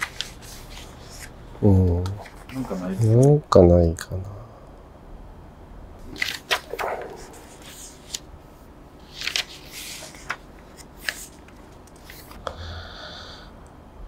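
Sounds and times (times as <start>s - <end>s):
book pages rustling: 0.0s - 3.4s, 6.0s - 8.3s, 9.0s - 12.4s.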